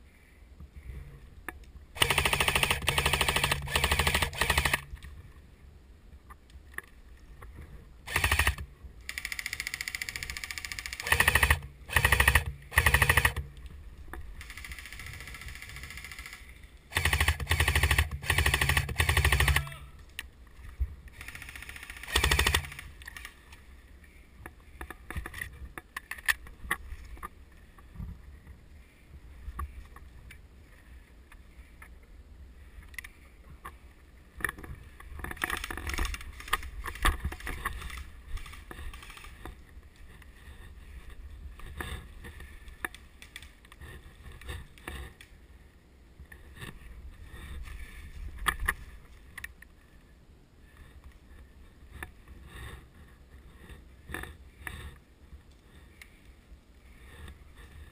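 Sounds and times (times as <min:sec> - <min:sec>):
scattered clicks: 0:01.5 - 0:05.2, 0:08.1 - 0:20.3, 0:21.0 - 0:23.7, 0:34.4 - 0:40.1, 0:42.6 - 0:43.8
airsoft rifle bursts: 0:02.0 - 0:04.9, 0:08.1 - 0:13.5, 0:14.4 - 0:19.8, 0:21.2 - 0:23.3.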